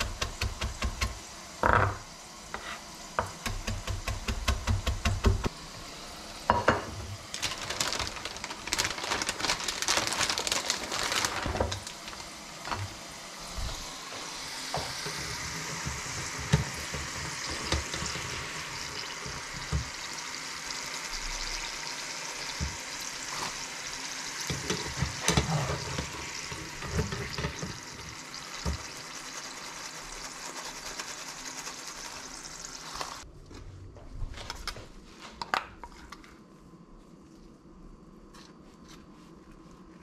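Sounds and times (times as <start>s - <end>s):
chips sizzling in hot oil: 7.2s - 33.3s.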